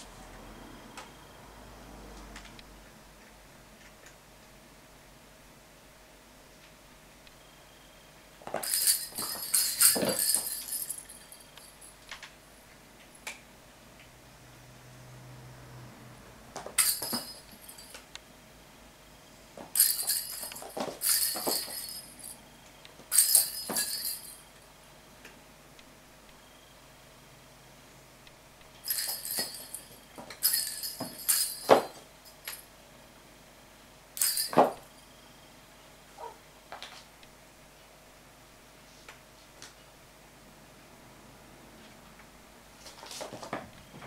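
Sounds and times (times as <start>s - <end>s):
toy balls rattling and jingling: 8.5s - 11.9s, 16.7s - 18.0s, 19.8s - 22.4s, 23.1s - 24.4s, 28.8s - 32.6s, 34.2s - 34.9s.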